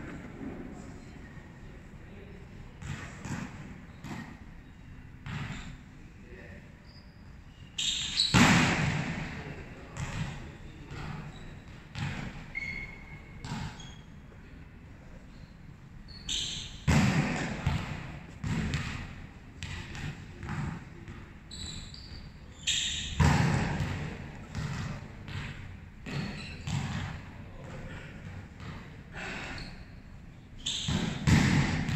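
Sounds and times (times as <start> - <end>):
volleyball thudding on court floor: 8.3 - 9.2, 16.9 - 20.8, 30.9 - 31.9.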